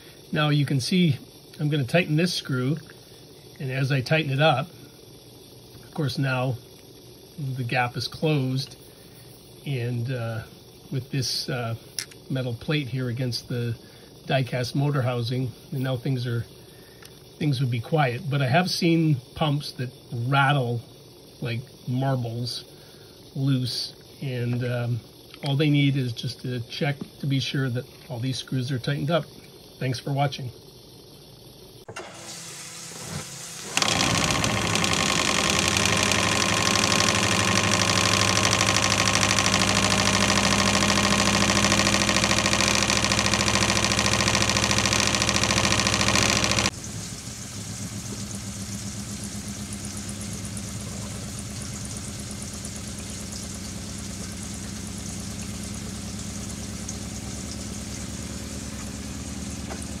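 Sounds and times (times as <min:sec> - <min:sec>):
water pump running with ticking: 0:00.0 - 1:00.0
water pump rattling: 0:33.4 - 1:00.0.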